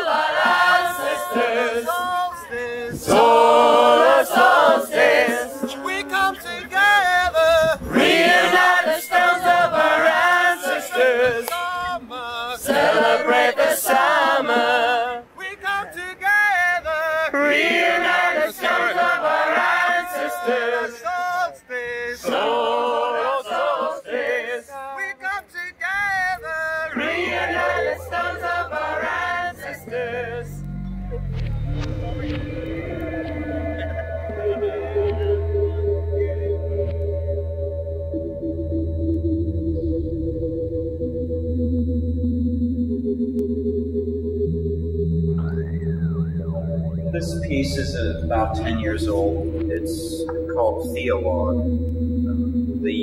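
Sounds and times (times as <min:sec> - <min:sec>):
crowd chanting: 0:00.0 - 0:16.2, 0:17.3 - 0:25.2, 0:26.6 - 0:36.6
low droning tone: 0:26.9 - 0:53.0.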